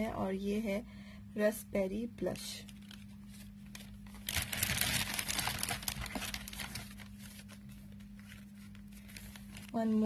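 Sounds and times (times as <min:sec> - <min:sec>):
packaging crinkling and rustling: 0:02.3 - 0:10.0.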